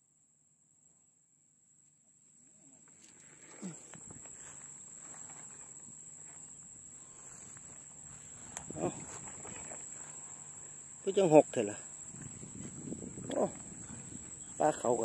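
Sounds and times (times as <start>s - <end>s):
high insect drone: 0.6s - 15.0s
rice plants rustling: 3.2s - 10.8s.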